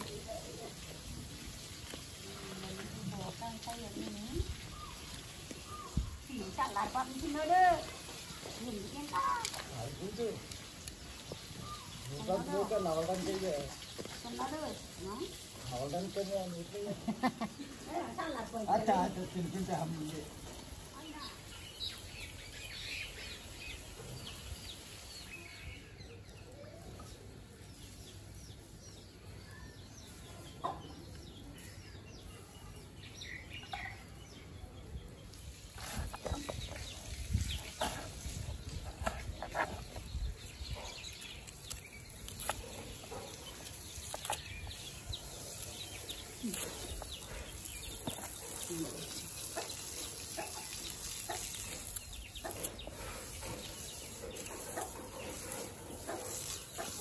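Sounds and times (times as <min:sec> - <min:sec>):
chickens clucking: 0:45.2 - 0:57.0.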